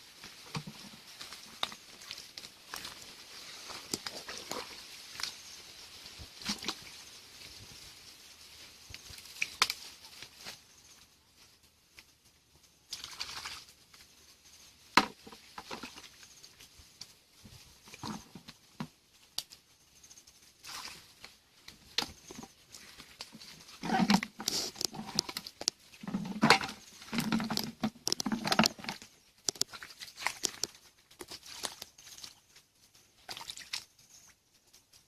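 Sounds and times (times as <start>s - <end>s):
feet sloshing in muddy stream: 0.0s - 5.5s, 12.9s - 13.8s, 20.6s - 21.2s, 28.6s - 32.4s, 33.2s - 34.2s
water splashes: 0.4s - 5.5s, 6.2s - 7.1s, 12.9s - 13.8s, 20.6s - 21.2s, 23.3s - 32.4s, 33.2s - 34.3s.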